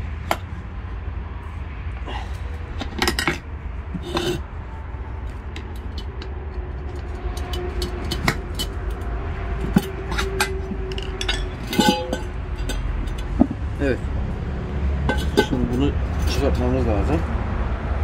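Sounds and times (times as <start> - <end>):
steady low rumble: 0.0 - 18.0
screwdrivers scraping wheel rim: 2.7 - 4.5, 5.3 - 13.6, 15.0 - 16.6
metallic clicks and clinks: 5.5 - 13.4.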